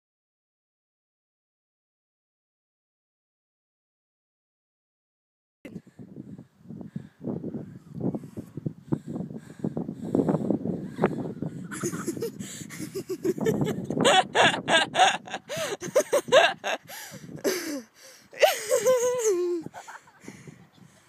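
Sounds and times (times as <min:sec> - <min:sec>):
people laughing: 0:11.6 - 0:17.8, 0:18.4 - 0:21.0
person shrieking: 0:17.5 - 0:19.7.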